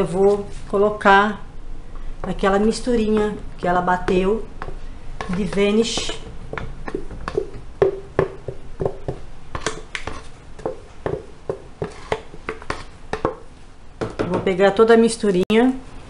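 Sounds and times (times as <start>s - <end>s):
wooden stick knocking plastic jug: 4.0s - 13.4s.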